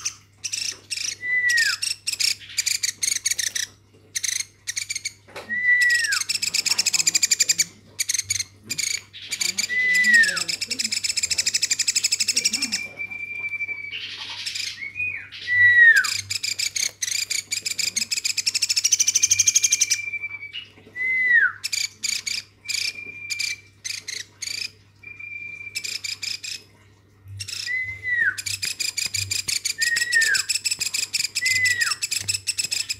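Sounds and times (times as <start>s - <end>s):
woodpecker chick begging calls: 5.9s - 12.9s, 27.4s - 32.9s.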